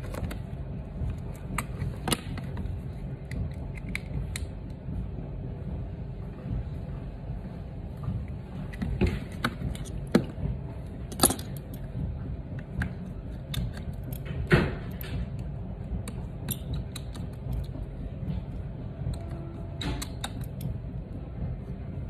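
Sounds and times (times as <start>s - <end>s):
steady low hum: 0.0s - 22.0s
tools clicking and tapping: 12.6s - 17.8s, 19.1s - 20.7s.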